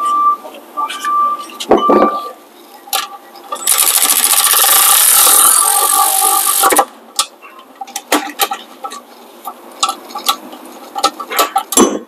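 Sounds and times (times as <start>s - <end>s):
cordless electric ratchet running: 3.6s - 6.8s
sharp ratchet clicks: 3.6s - 6.9s.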